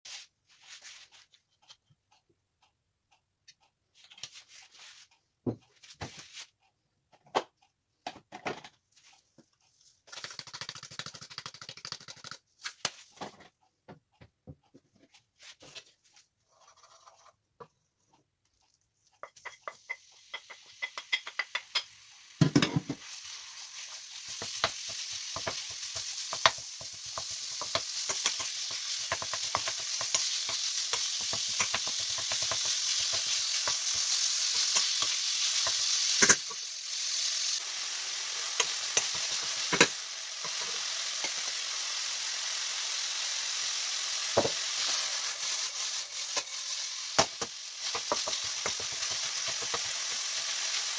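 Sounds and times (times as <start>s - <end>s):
knocks and clicks of handling a wok: 7.1s - 8.9s, 19.2s - 23.0s, 24.3s - 36.6s, 47.2s - 50.0s
wooden spoon scraping a pan: 15.1s - 17.4s
meat sizzling in hot oil: 19.4s - 50.9s.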